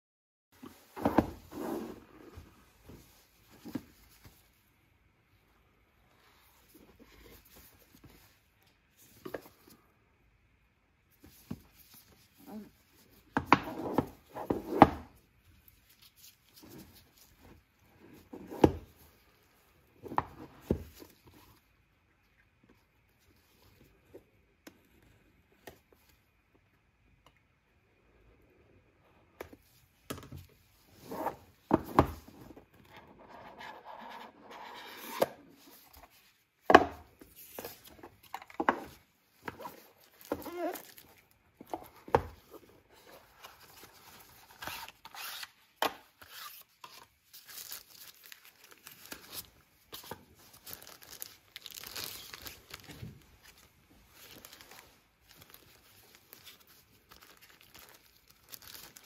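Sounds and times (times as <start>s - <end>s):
cardboard knocking and sliding: 0.6s - 4.0s
packaging rustling and crinkling: 37.2s - 59.0s.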